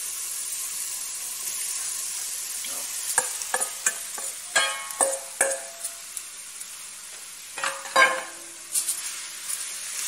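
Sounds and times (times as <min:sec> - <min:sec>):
food sizzling in a pot: 0:00.0 - 0:10.0
knocks and clinks against pot: 0:03.2 - 0:06.0, 0:07.6 - 0:08.4.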